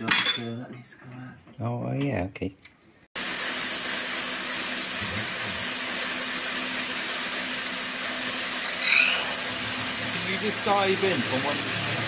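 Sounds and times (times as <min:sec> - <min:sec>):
milling machine cutting steel: 0:03.2 - 0:12.0.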